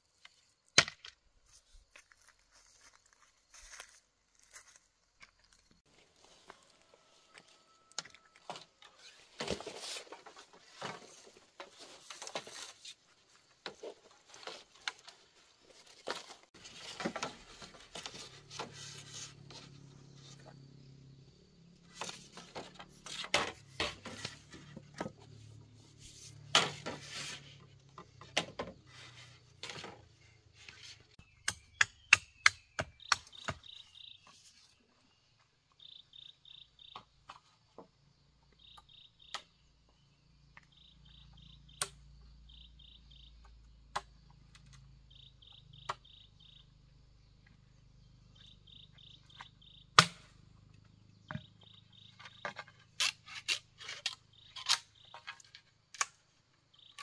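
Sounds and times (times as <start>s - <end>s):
insect chirping: 31.0s - 34.4s, 35.1s - 57.0s
knife chopping bamboo: 31.2s - 33.7s, 50.0s - 50.3s
sharp knock of bamboo: 50.0s - 50.3s.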